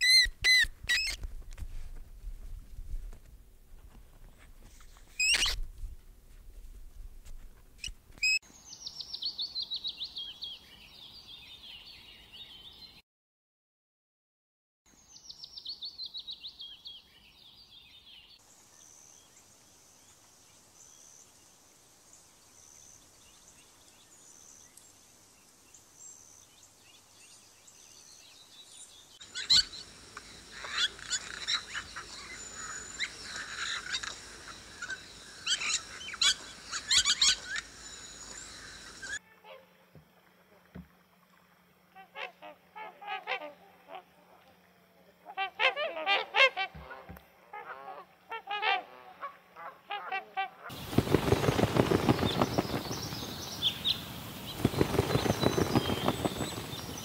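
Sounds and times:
high chirping animal calls: 0.0 - 1.2, 29.2 - 39.2
birds chirping: 25.7 - 39.2, 50.7 - 57.0.

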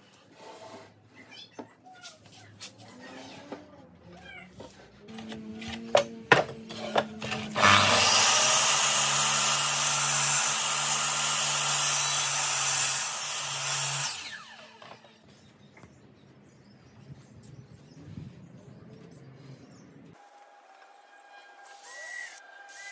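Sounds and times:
mitre saw cutting wood: 6.7 - 15.0.

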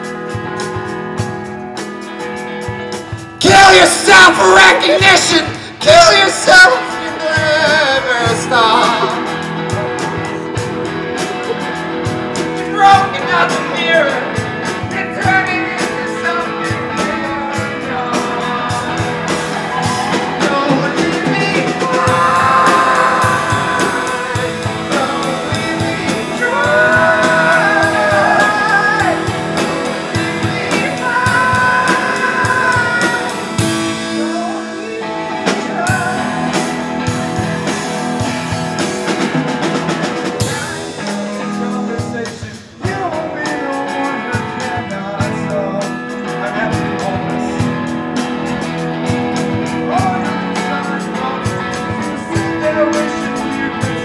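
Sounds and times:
drum kit: 0.0 - 54.0
guitars: 0.0 - 54.0
person singing into a microphone: 3.3 - 10.6, 15.0 - 36.7, 40.4 - 47.8, 49.7 - 54.0.

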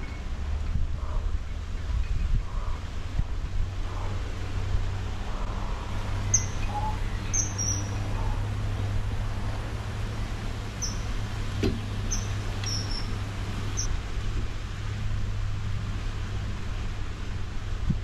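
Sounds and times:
steady low rumble: 0.0 - 18.0
birds chirping: 5.2 - 8.8, 10.5 - 13.9.

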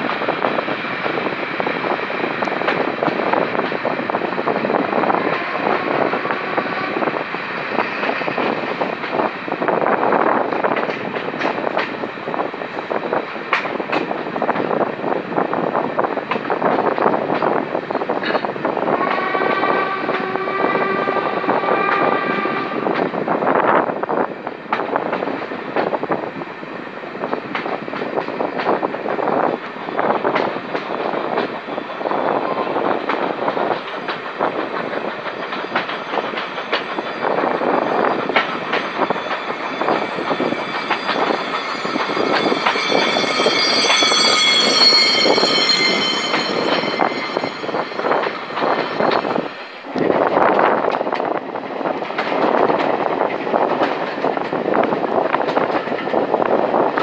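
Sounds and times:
train rumble: 0.0 - 57.0
train wheels clattering: 27.4 - 56.9
high drawn-out squeal: 32.0 - 50.5
locomotive whistle chord: 34.6 - 50.0.

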